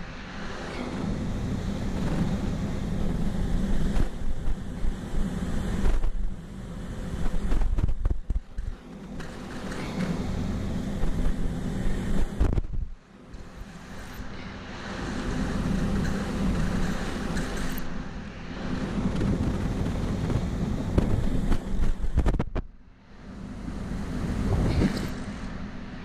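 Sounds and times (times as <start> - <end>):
low machinery hum: 0.0 - 26.0
wind buffeting microphone: 18.6 - 22.6, 24.1 - 25.2.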